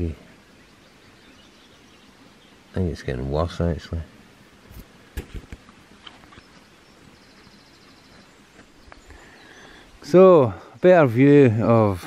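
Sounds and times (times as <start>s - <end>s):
camera handling knocks and rustles: 4.7s - 6.2s.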